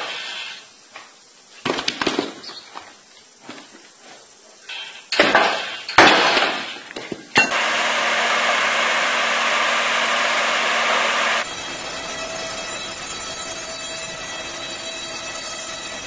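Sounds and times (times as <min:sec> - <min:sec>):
log loader machinery running: 0:04.7 - 0:16.0
wood splitting cracks: 0:05.2 - 0:07.2
low hum: 0:07.4 - 0:16.0.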